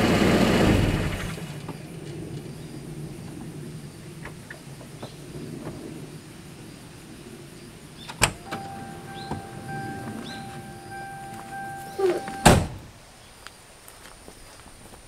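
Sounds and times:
birds chirping: 7.6s - 13.4s
car door unlatching click: 8.1s - 12.9s
low steady hum: 8.2s - 13.0s
electronic warning beep: 8.4s - 12.7s.

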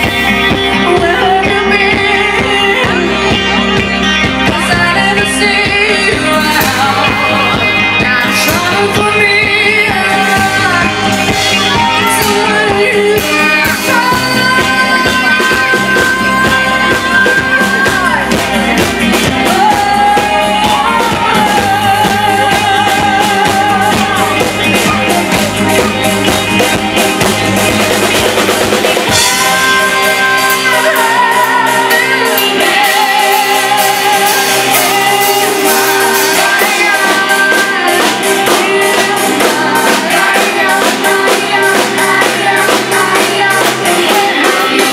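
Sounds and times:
drum kit: 0.0s - 44.9s
electric guitar: 0.0s - 44.9s
keyboards: 0.0s - 44.9s
person singing: 0.0s - 44.9s.

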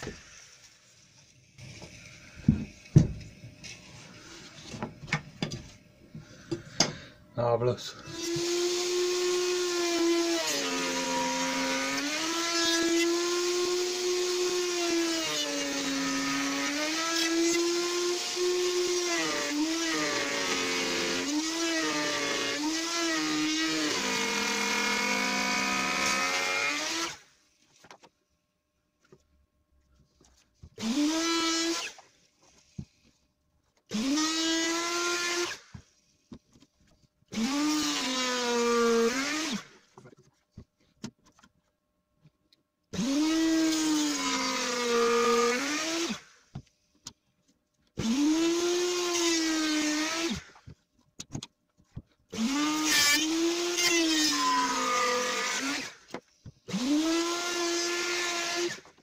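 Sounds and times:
router cutting timber: 8.0s - 27.2s, 30.8s - 32.0s, 33.9s - 35.7s, 37.3s - 39.8s, 43.0s - 46.2s, 48.0s - 50.6s, 52.3s - 59.0s.

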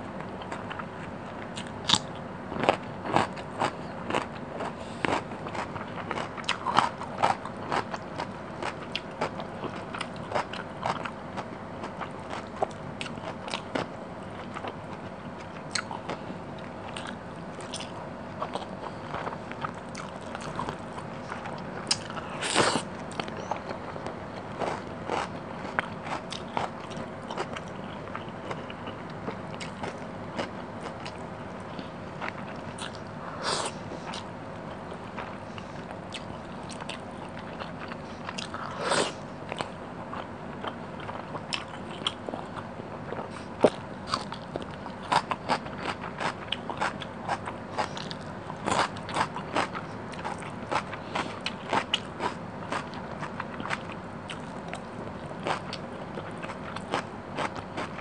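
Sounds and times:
close chewing and mouth sounds: 0.2s - 58.0s.

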